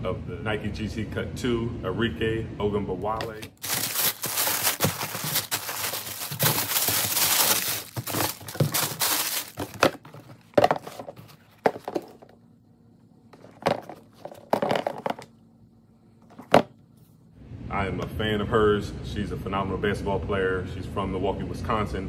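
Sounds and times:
shoes being handled: 0:03.1 - 0:12.4, 0:13.4 - 0:15.3, 0:16.2 - 0:16.7
tissue paper crinkling: 0:03.3 - 0:12.0.

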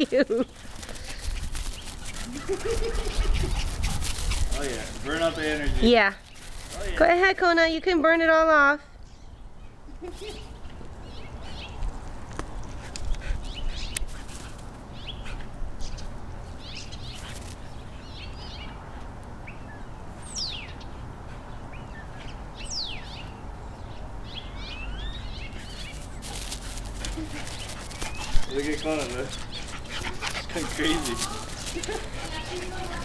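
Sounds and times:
dogs scuffling on grass: 0:00.0 - 0:07.8, 0:10.1 - 0:18.2, 0:24.7 - 0:33.0
birds chirping: 0:00.0 - 0:33.0.

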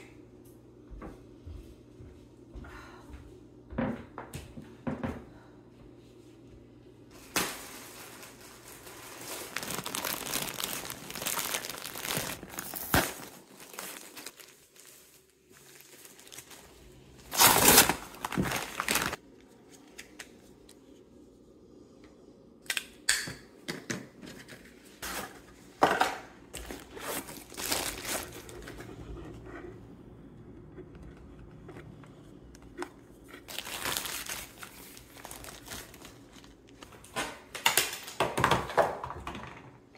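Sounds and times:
packaging crinkling and tearing: 0:07.2 - 0:19.2, 0:26.6 - 0:28.8, 0:33.4 - 0:36.9.

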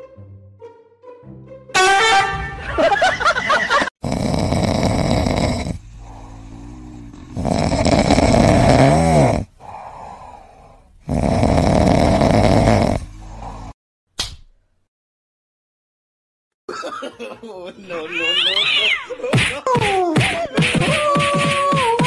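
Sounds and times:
cat snoring: 0:04.0 - 0:13.8
cat breathing: 0:04.5 - 0:08.8, 0:09.4 - 0:13.8.

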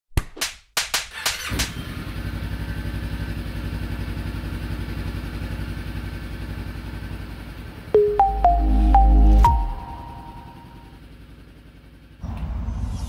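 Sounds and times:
motorcycle engine idling: 0:02.1 - 0:07.8.

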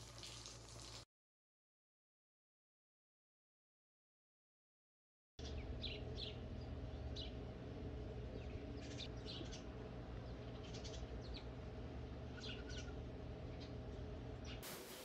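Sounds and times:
small birds chirping: 0:05.4 - 0:14.6
steady low hum: 0:05.4 - 0:15.0.

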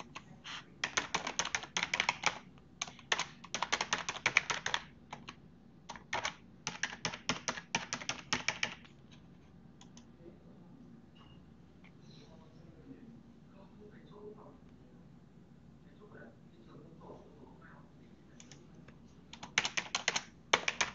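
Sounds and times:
typing on computer keyboard: 0:00.8 - 0:08.9, 0:19.3 - 0:20.9
lone keyboard clicks: 0:19.3 - 0:20.9.

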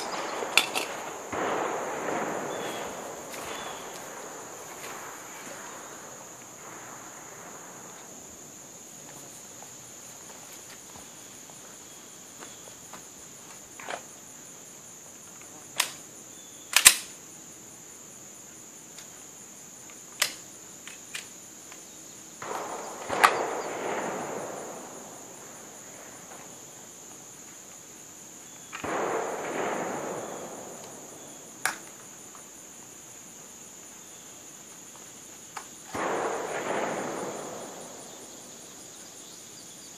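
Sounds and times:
handgun gunshots: 0:00.0 - 0:01.6
high insect drone: 0:00.0 - 0:39.9.

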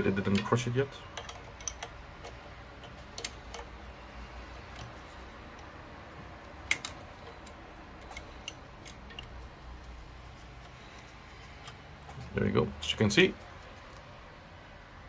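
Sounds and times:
low steady hum: 0:00.0 - 0:15.0
metal wrench clicking: 0:01.1 - 0:03.7, 0:06.7 - 0:09.4.

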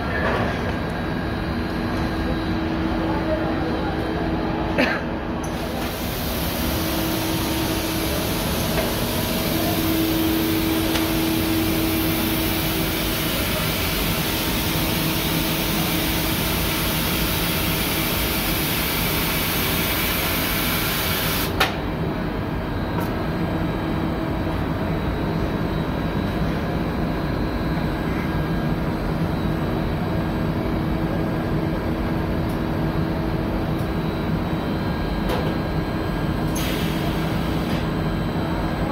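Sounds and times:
machinery humming: 0:00.0 - 0:38.9
machine hiss: 0:05.4 - 0:21.6, 0:36.4 - 0:37.9.

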